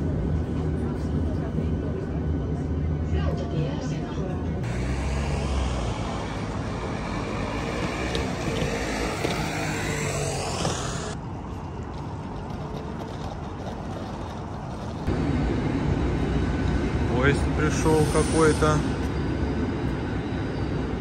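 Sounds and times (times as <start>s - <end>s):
steady traffic hum: 0.0s - 21.0s
passing vehicle motor whine: 4.6s - 21.0s.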